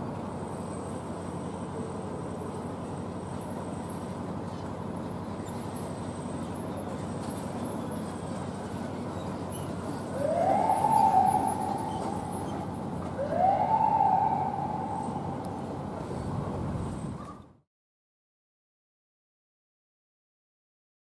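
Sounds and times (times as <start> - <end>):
city traffic: 0.0 - 17.3
electronic siren whoops: 10.1 - 15.8.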